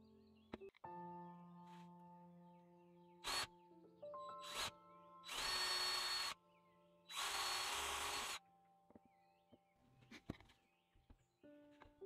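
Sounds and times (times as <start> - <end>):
cordless drill whine: 3.2 - 3.5, 4.4 - 6.4, 7.1 - 8.4.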